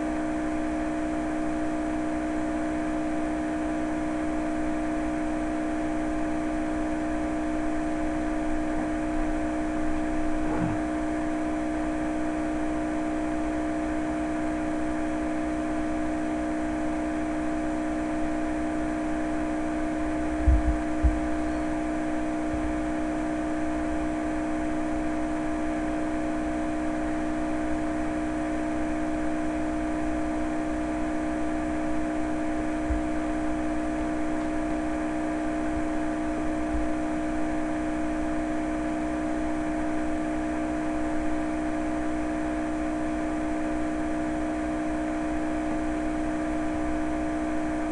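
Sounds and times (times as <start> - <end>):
steady mechanical hum: 0.0 - 47.9
short low thumps: 10.2 - 11.0, 20.4 - 21.4.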